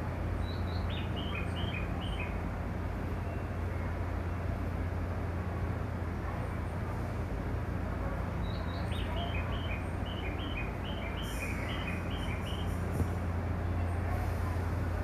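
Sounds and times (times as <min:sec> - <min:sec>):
small bird chirping: 0:08.4 - 0:12.9.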